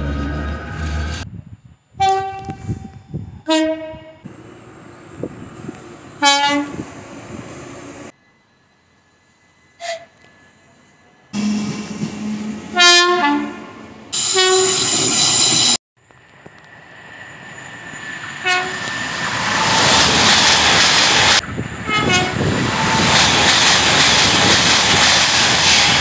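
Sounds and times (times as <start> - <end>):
train passing at speed: 0.0 - 1.3, 4.2 - 26.0
train horn blasts: 2.0 - 4.3, 6.2 - 6.8, 11.4 - 15.1, 18.4 - 18.8, 21.9 - 22.5.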